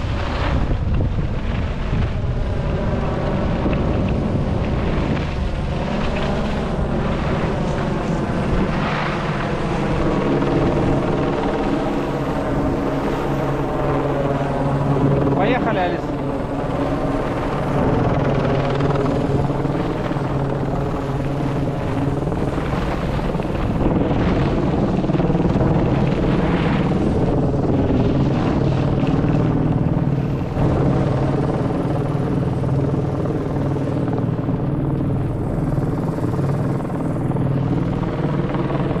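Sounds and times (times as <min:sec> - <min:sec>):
low mechanical drone: 0:00.0 - 0:39.0
noisy rush: 0:00.0 - 0:39.0.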